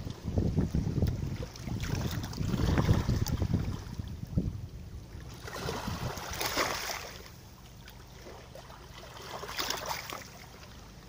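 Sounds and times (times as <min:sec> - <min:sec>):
small waves on pebbly shore: 0:05.3 - 0:07.4, 0:08.1 - 0:10.7.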